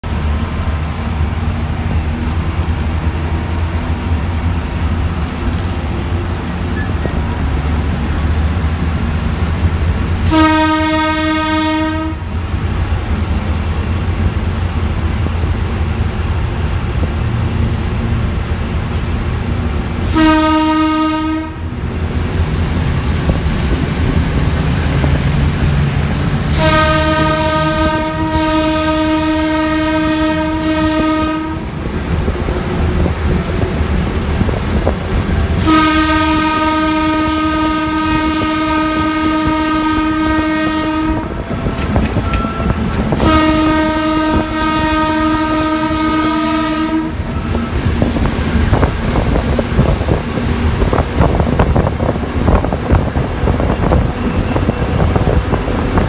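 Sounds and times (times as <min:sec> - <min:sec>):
locomotive engine rumble: 0:00.0 - 0:56.0
locomotive horn blasts: 0:10.2 - 0:12.4, 0:20.0 - 0:21.8, 0:26.4 - 0:31.8, 0:35.5 - 0:48.1.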